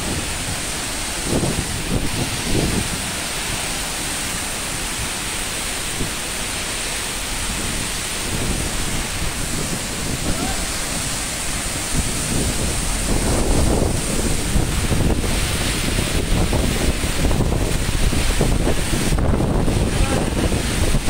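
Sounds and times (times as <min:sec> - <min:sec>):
wind buffeting microphone: 0:00.0 - 0:06.6, 0:07.2 - 0:21.0
rushing water and rain: 0:00.0 - 0:21.0.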